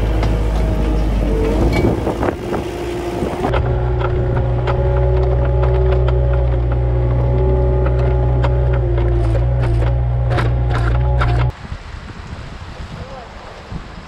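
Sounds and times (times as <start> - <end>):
low machine drone: 0.0 - 11.5
clicks and knocks: 3.5 - 11.5.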